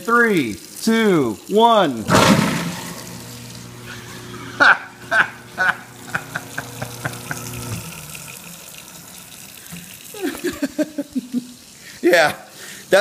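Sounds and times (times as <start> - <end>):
faucet running water into sink: 0.0 - 13.0
garbage disposal motor humming: 1.9 - 11.0.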